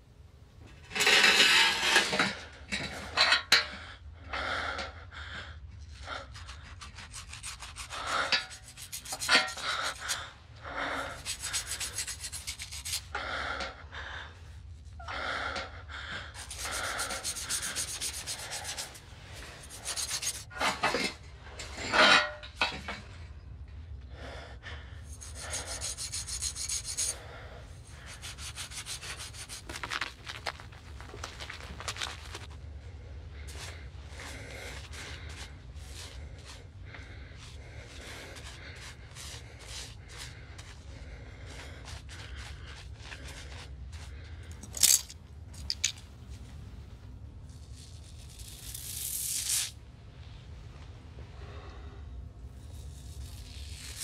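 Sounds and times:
blade scraping hair off scalp: 6.4s - 10.2s, 11.2s - 13.1s, 16.4s - 20.5s, 25.1s - 27.2s, 27.8s - 32.5s, 37.4s - 43.8s, 47.6s - 49.8s, 52.6s - 54.0s.

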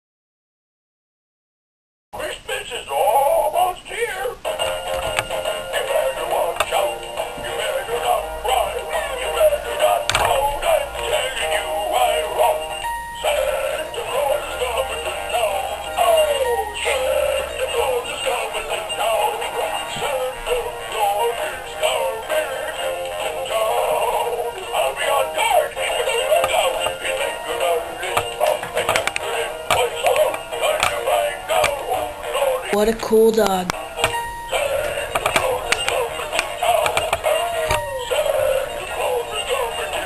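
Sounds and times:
processed dog howling melody: 5.5s - 28.5s, 34.4s - 40.0s.

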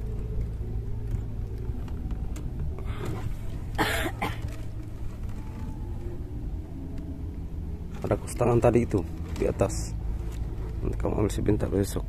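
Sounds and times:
low rumble: 0.0s - 12.0s
man coughing: 3.8s - 4.5s.

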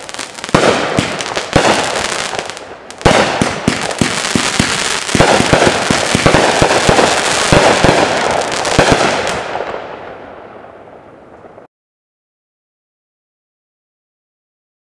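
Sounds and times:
fireworks shots and bursts: 0.0s - 11.6s
fireworks crackle: 0.0s - 11.7s.

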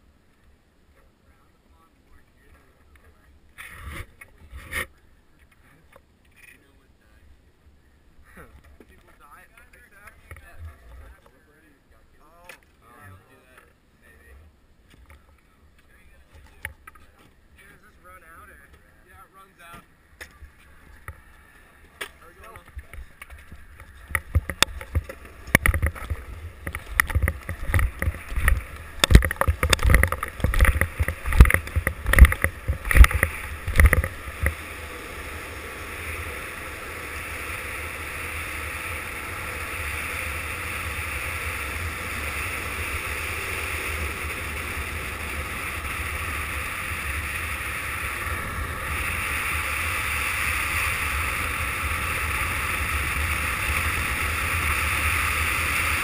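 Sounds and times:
longboard wheels rolling on asphalt: 14.8s - 56.0s
wind rushing over microphone: 22.6s - 56.0s
loud irregular thumps: 22.8s - 34.6s.

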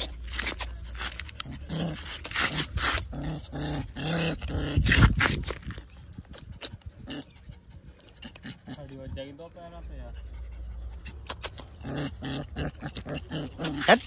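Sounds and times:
puppy growling and yipping: 0.0s - 5.6s, 10.3s - 14.0s.

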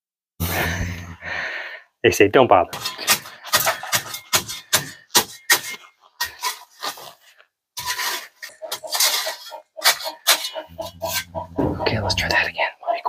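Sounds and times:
rustling: 5.4s - 11.3s.

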